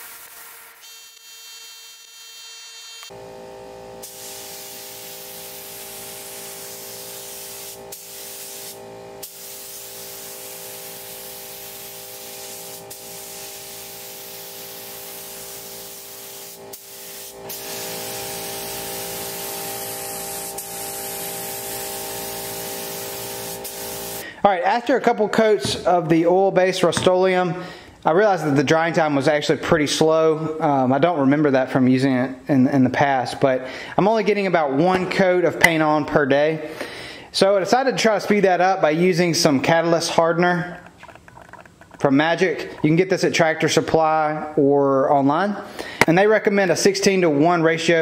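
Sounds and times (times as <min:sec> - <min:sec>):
spray gun hissing: 0:04.0 - 0:24.2.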